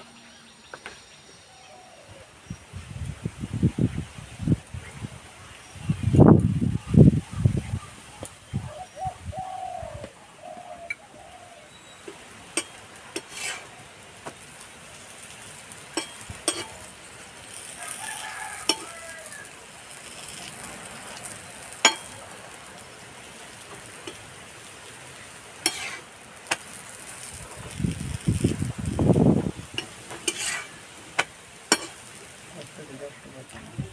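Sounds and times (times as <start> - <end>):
flatbread sizzling in oil: 11.9 - 33.7
metal spatula clicking on pan: 15.9 - 16.8, 18.6 - 19.0, 31.7 - 32.1.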